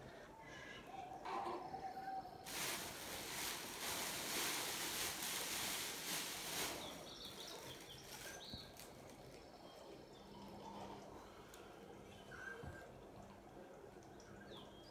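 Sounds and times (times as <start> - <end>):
plastic bags rustling: 2.4 - 9.4.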